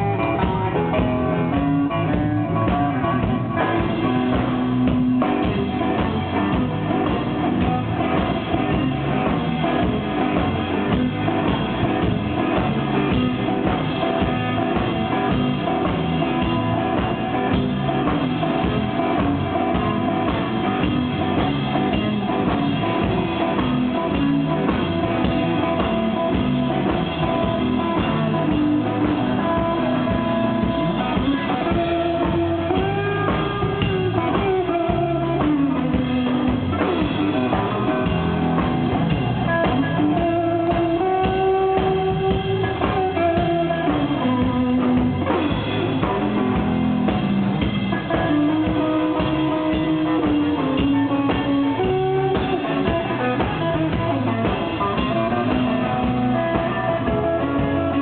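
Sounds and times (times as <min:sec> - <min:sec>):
drum kit: 0:00.0 - 0:58.0
electric guitar bending notes: 0:00.0 - 0:58.0.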